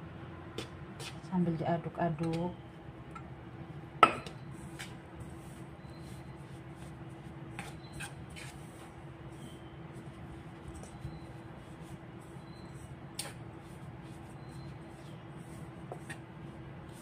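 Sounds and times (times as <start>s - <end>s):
steady low hum: 0.0s - 17.0s
spoon stirring dough: 4.2s - 17.0s.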